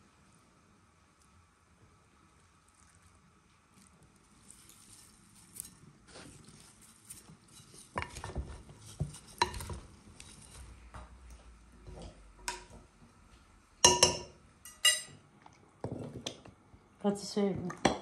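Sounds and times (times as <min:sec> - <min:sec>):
spoon stirring salad: 0:03.8 - 0:10.8, 0:13.8 - 0:15.2
spoon knocking glass bowl: 0:13.8 - 0:15.1
spoon clattering on dish: 0:13.8 - 0:15.2.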